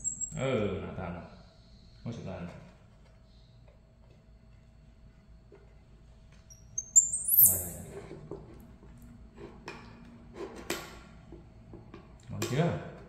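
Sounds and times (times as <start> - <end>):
baby monkey squealing: 0.0 - 0.4, 6.8 - 7.8.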